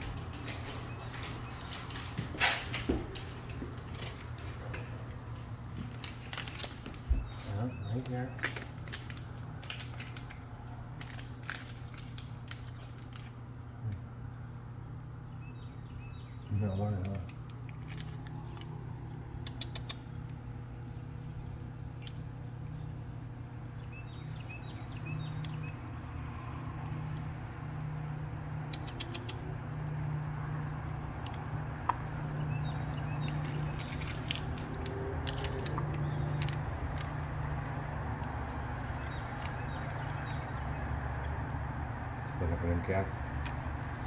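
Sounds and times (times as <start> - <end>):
steady low hum: 0.0 - 44.0
packaging clicks and crinkles: 0.1 - 13.6, 16.9 - 19.2, 33.1 - 41.3.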